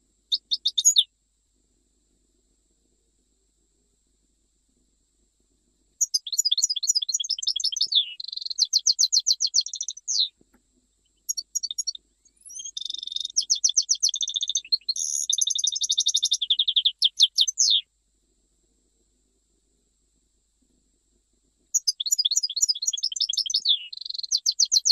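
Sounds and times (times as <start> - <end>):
goldfinch singing: 0.3 - 1.1, 6.0 - 10.3, 11.2 - 17.8, 21.7 - 24.9.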